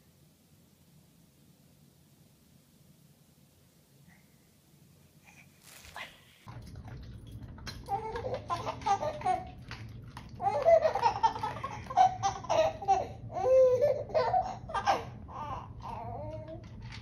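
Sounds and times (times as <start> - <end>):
baby laughing and babbling: 7.9 - 9.6, 10.4 - 16.6.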